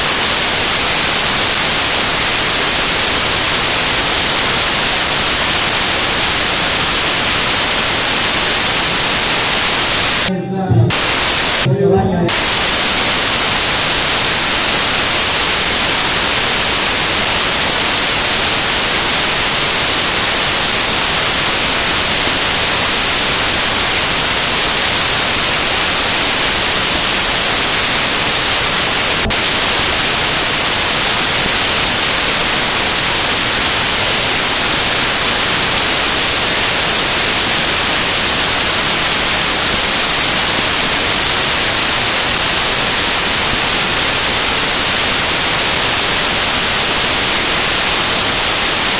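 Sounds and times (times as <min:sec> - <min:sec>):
loud static hiss: 0:00.0 - 0:48.9.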